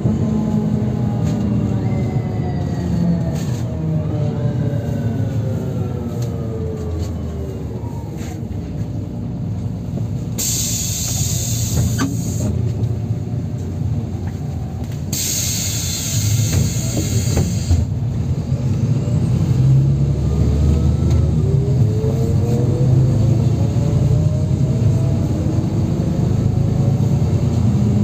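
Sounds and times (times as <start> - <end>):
bus engine and drivetrain whine: 0.0 - 28.0
compressed air hiss: 10.4 - 12.5, 15.1 - 17.9.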